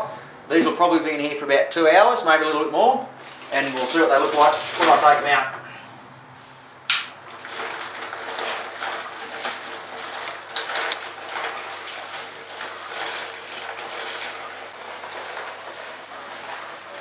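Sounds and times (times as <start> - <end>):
tumbler churning sloshing rattle: 3.1 - 5.8, 7.2 - 17.0
sharp click: 6.9 - 7.1.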